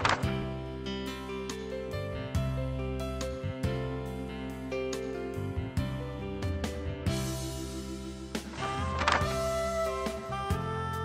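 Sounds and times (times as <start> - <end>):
instrumental music with held notes: 0.0 - 11.0.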